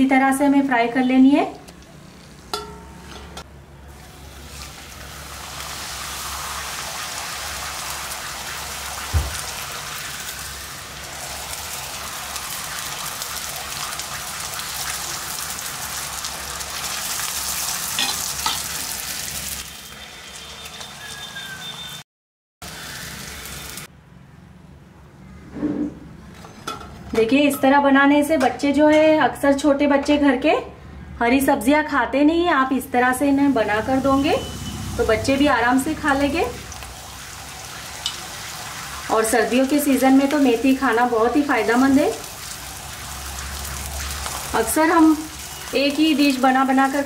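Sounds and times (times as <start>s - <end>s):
dough sizzling in hot oil: 3.9s - 22.0s, 22.6s - 23.9s, 32.9s - 47.0s
thump: 9.1s - 9.4s.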